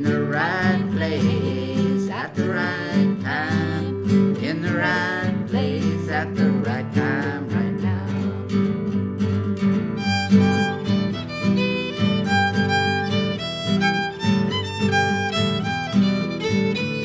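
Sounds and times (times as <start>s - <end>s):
strummed acoustic guitar: 0.0s - 17.0s
violin melody: 10.0s - 17.0s.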